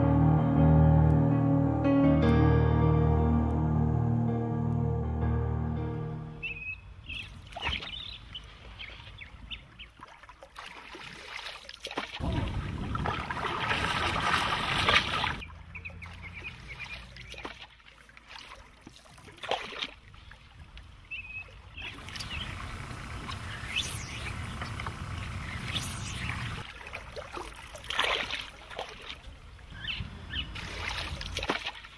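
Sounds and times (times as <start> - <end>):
water lapping and splashing: 7.1 - 31.9.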